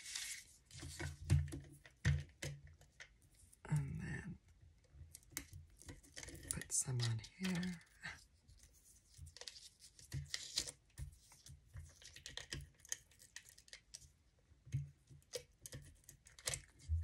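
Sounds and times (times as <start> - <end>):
paper crackling rustles: 0.0 - 1.1.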